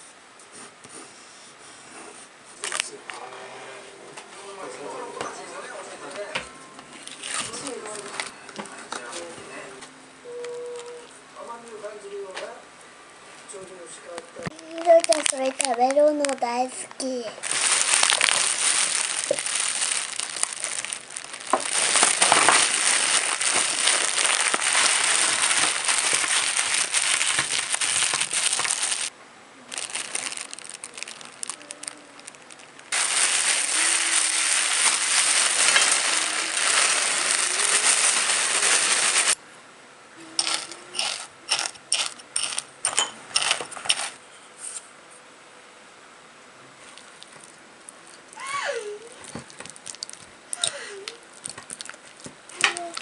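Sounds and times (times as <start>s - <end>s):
cookies crunching: 14.5s - 16.4s, 17.4s - 29.1s, 29.7s - 39.4s, 40.4s - 42.7s, 46.9s - 48.4s, 49.2s - 53.0s
plastic bag crinkling: 14.5s - 29.1s, 29.7s - 39.4s, 40.4s - 42.7s, 49.2s - 53.0s.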